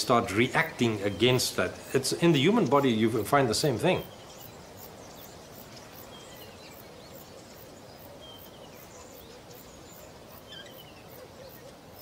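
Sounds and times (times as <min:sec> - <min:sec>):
outdoor nature ambience: 0:00.0 - 0:12.0
faint bird chirps: 0:03.9 - 0:12.0.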